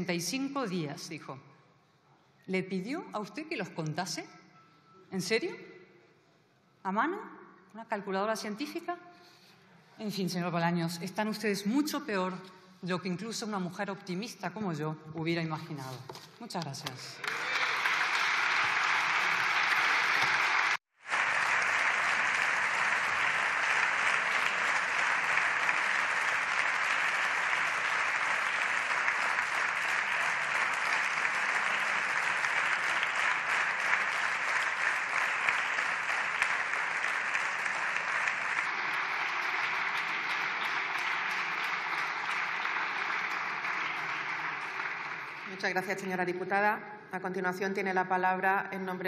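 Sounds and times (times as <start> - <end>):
people applauding: 16.8 - 46.2.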